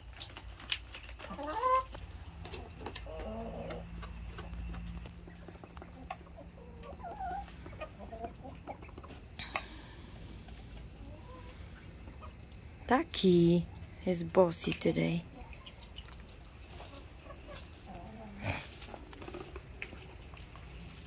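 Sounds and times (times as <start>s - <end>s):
hens clucking: 0.0s - 21.0s.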